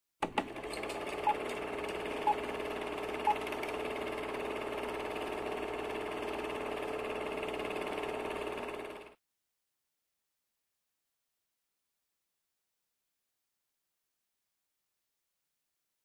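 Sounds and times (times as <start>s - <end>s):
projector click: 0.2s - 2.5s
film projector whirring rattle: 0.2s - 9.2s.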